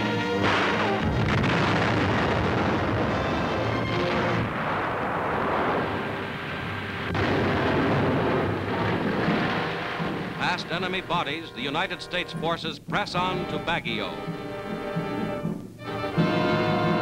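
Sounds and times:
background music: 0.0s - 4.7s, 5.5s - 17.0s
explosions rumbling roar: 0.4s - 11.1s.

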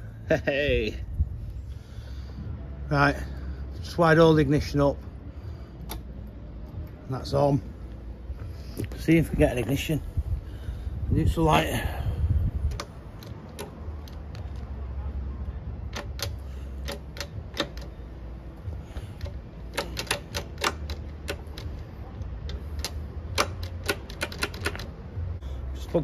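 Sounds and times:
small parts clicking and tapping: 12.6s - 14.8s, 15.8s - 18.0s, 18.6s - 25.1s.

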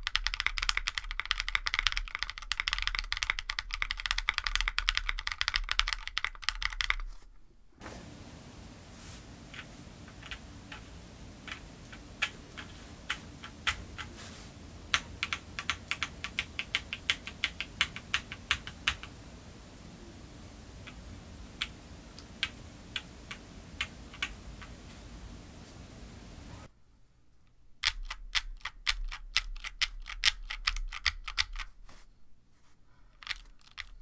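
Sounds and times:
mechanical keyboard keystrokes: 0.0s - 7.0s, 9.5s - 14.2s, 14.9s - 19.1s, 21.6s - 24.7s, 33.2s - 33.9s.

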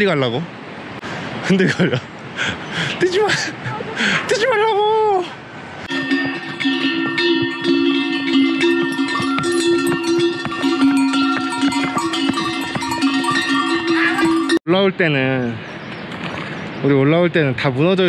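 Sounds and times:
harness bells clanking and ringing: 5.9s - 14.6s.

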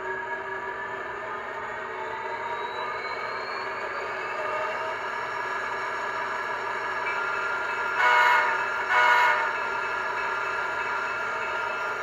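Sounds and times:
short locomotive horn blasts: 8.0s - 9.6s.

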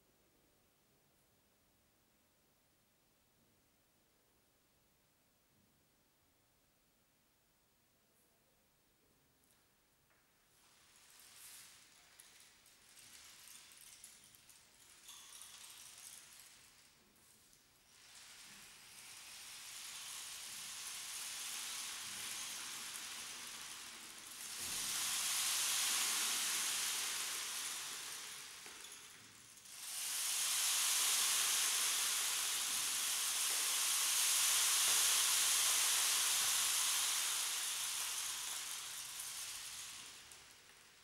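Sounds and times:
rain stick trickling: 10.7s - 16.9s, 17.9s - 41.0s.

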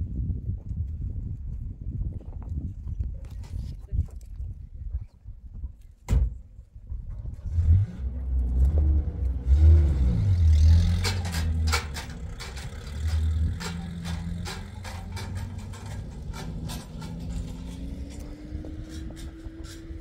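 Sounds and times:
van engine revving: 7.4s - 20.0s
sharp knocks and clatters: 8.5s - 20.0s.

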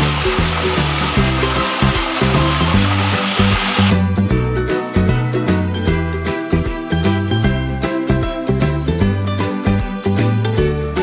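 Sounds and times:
bass line: 0.0s - 6.2s
upbeat christmas-style music: 0.0s - 11.0s.

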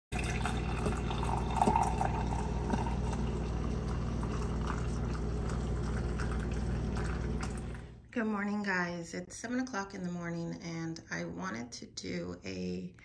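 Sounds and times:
coffee pouring into a mug: 0.1s - 7.9s
coffee machine humming: 0.1s - 8.1s.

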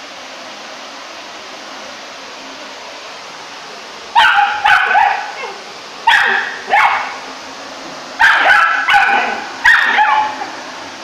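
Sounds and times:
vacuum cleaner hiss: 0.0s - 11.0s
puppy barking: 4.2s - 7.2s, 8.2s - 10.6s.

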